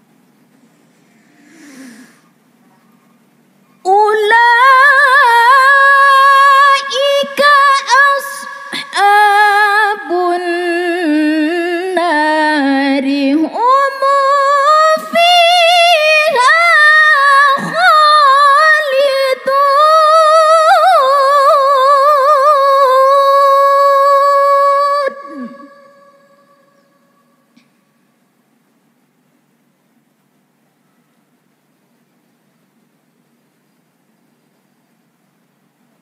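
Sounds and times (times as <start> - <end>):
woman reciting in melodic chant: 3.1 - 27.5.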